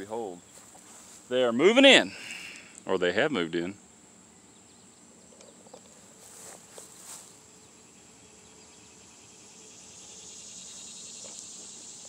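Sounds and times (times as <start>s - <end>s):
soft rustles in grass: 0.0s - 1.6s, 5.2s - 7.9s
insect song: 0.0s - 12.0s.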